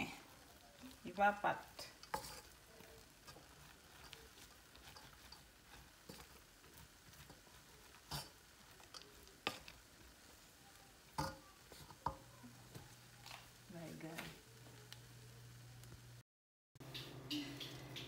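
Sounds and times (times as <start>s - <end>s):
wooden spoon knocking metal pot: 11.2s - 12.9s.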